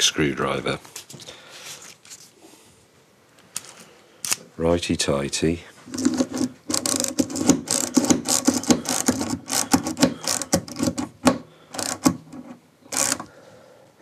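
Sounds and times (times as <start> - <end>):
screwdriver clicking quickly: 6.0 - 12.3, 12.9 - 13.3.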